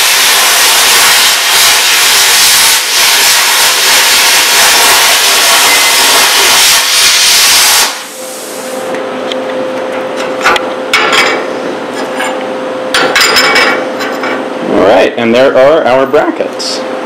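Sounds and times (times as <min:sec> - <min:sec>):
plasma cutter hissing: 0:00.0 - 0:08.9
steady hum: 0:00.0 - 0:17.0.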